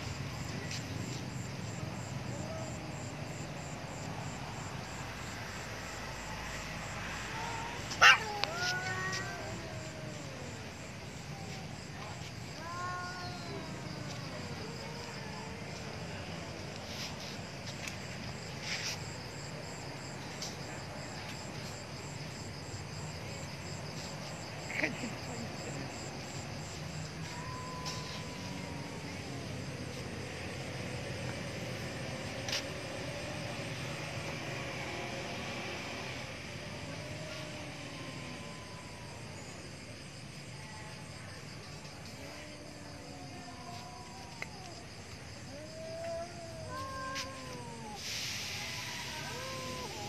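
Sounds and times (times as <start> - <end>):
crickets chirping: 0.0 - 50.0
insects trilling: 0.0 - 50.0
low hum of distant engine: 0.0 - 50.0
faint scuffs: 16.7 - 19.4, 32.4 - 32.8, 46.0 - 47.6.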